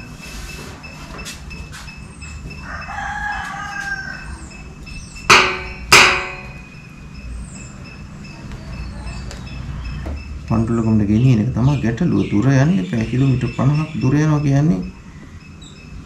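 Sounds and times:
rooster crowing: 2.4 - 4.8
faint high bird chirps: 6.5 - 16.0.

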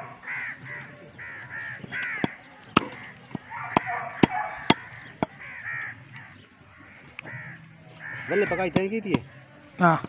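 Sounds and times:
crows cawing: 0.0 - 9.4
cleaver chopping on wooden block: 1.9 - 5.4.

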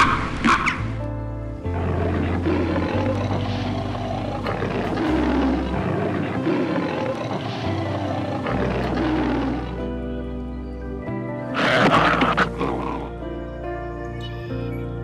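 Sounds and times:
background music with bass notes: 0.0 - 15.0
lion roaring: 1.6 - 10.2, 11.5 - 13.5.

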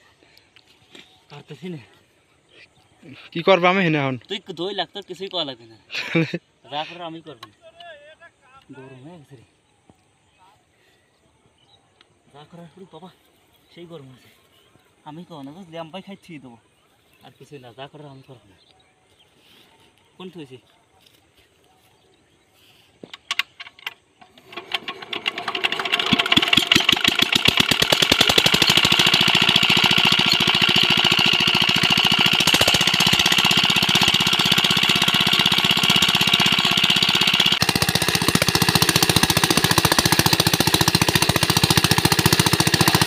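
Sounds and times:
small diesel engine running: 24.3 - 43.0
water gushing from pump: 24.5 - 43.0.

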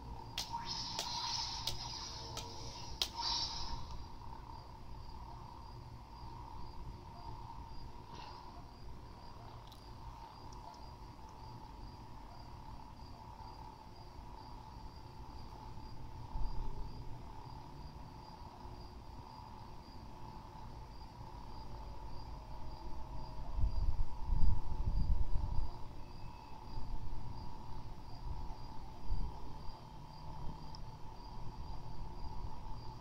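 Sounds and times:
crickets chirping: 0.0 - 33.0.

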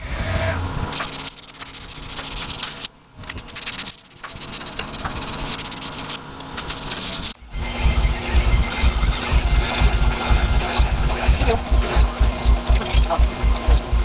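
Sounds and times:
sandpaper scratching on metal: 0.9 - 7.4.

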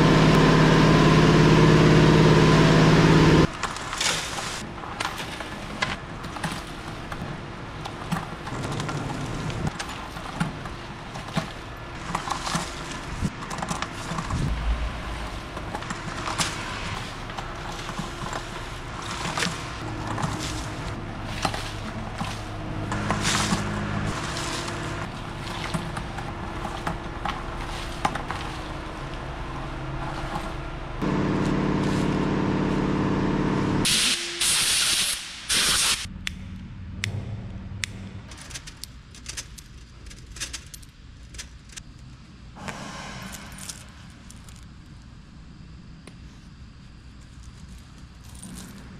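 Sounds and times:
steady machine hum: 0.0 - 3.5, 6.8 - 34.4
loud hum: 14.3 - 25.4, 28.2 - 38.5
loud hissing blasts: 42.6 - 44.3.

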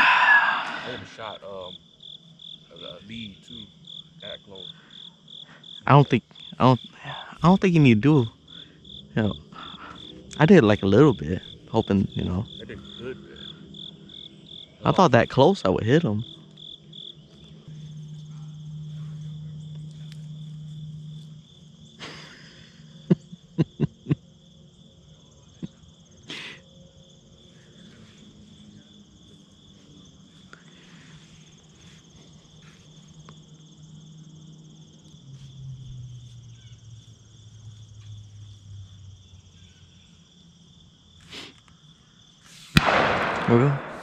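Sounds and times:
high-pitched insect chorus: 0.0 - 44.0
low hum: 17.3 - 23.3, 42.8 - 44.0.

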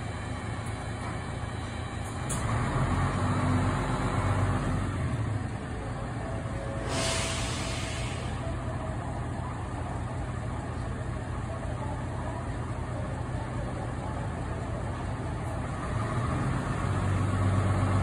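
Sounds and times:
bus diesel engine: 0.0 - 18.0
air brake hiss: 6.8 - 8.5.

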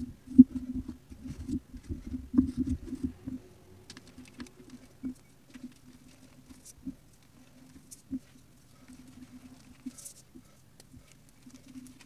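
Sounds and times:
chalk crunching and crackling: 3.9 - 12.0.

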